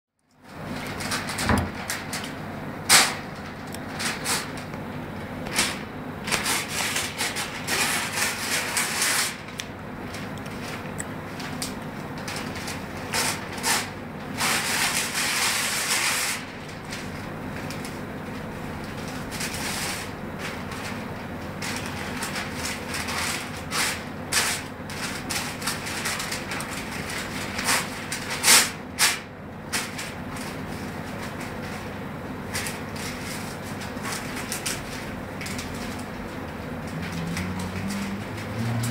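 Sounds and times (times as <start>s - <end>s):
newspaper rustling and crackling: 0.6s - 4.7s, 5.4s - 38.9s
paper tearing: 5.6s - 9.6s, 36.9s - 38.9s.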